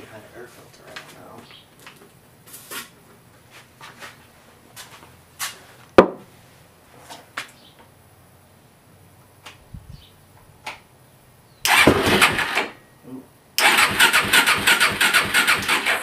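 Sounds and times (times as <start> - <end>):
engine cranking by starter: 11.6 - 12.8, 13.6 - 16.0.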